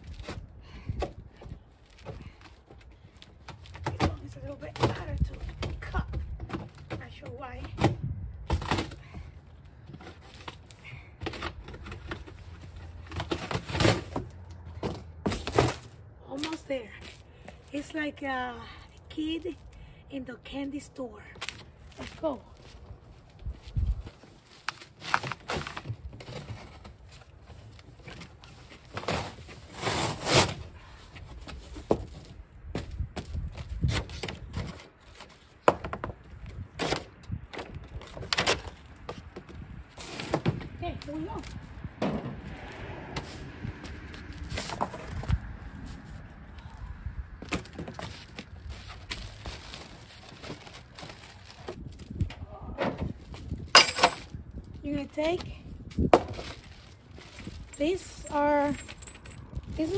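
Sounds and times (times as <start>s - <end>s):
cardboard scraping and rustling: 24.0s - 30.7s
plastic and cardboard rustling: 47.4s - 54.4s, 55.3s - 59.9s.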